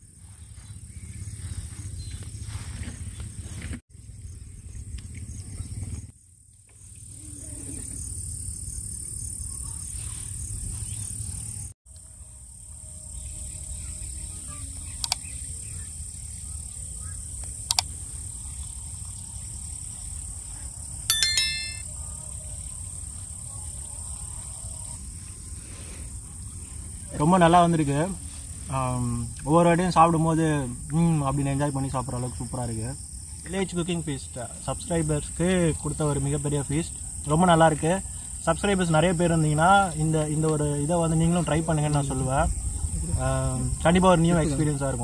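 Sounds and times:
insects droning: 0.0s - 21.1s, 21.9s - 45.0s
sharp clicks: 15.0s - 15.2s, 17.7s - 17.9s
short bright ding: 21.1s - 21.8s.

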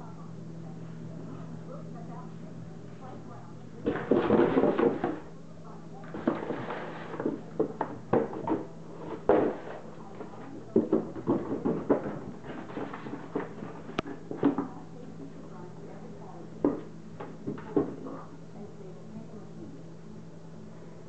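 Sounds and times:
paws on hardwood floor: 3.8s - 5.3s, 6.0s - 15.4s.

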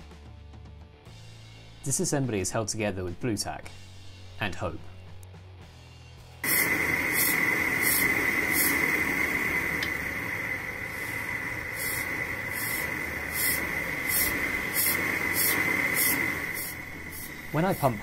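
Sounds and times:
blowtorch hissing and whistling: 6.4s - 18.0s
hand air pump hissing pulses: 6.4s - 18.0s.

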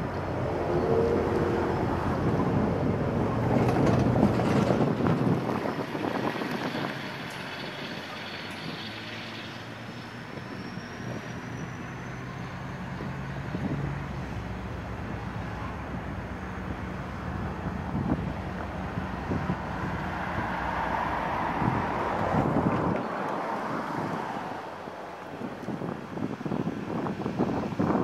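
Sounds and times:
diesel locomotive engine running: 0.0s - 20.0s.

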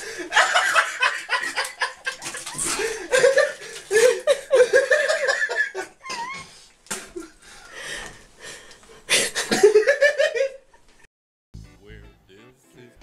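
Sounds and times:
person laughing: 0.2s - 7.3s, 9.1s - 10.6s.

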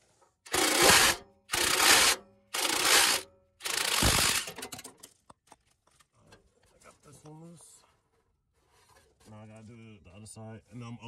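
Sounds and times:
impact wrench hammering: 0.5s - 4.9s.

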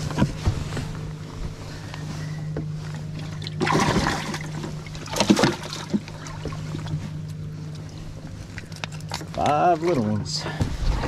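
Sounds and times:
steady low hum: 0.0s - 11.0s
fish splashing in water: 3.3s - 7.0s.

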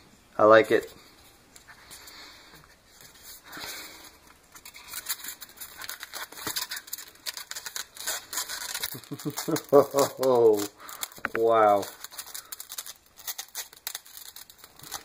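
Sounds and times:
soft rustle: 0.8s - 15.0s
tape and foam crinkling: 1.6s - 15.0s
small crackles and clicks: 4.3s - 15.0s.

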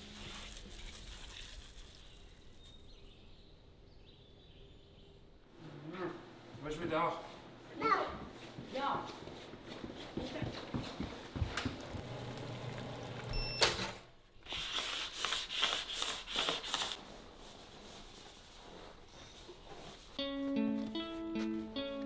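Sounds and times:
scraping and rustling: 0.0s - 2.9s.

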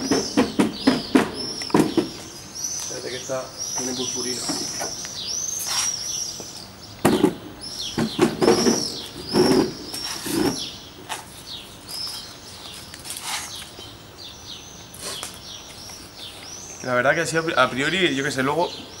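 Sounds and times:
stacked chairs clattering: 0.0s - 2.5s, 7.0s - 11.3s
small birds chirping: 0.0s - 19.0s.

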